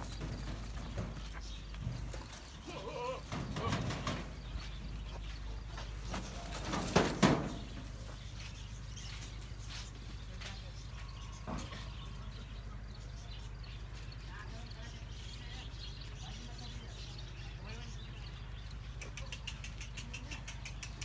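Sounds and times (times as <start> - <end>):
goats bleating: 2.6 - 3.9.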